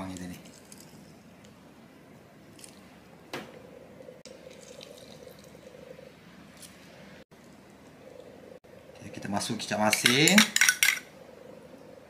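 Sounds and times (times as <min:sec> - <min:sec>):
wet squishing of limes: 0:04.3 - 0:05.7
juice dripping into a bowl: 0:04.3 - 0:05.8.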